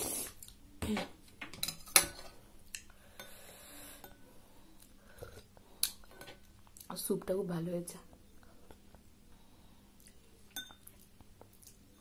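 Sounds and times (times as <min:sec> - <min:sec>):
spoon clinking glass bowl: 0:10.6 - 0:10.9.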